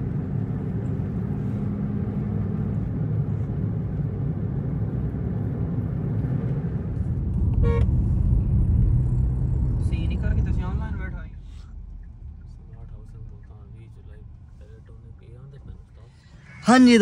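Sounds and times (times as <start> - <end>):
car cabin road rumble: 0.0 - 17.0
short horn beep: 7.6 - 7.9.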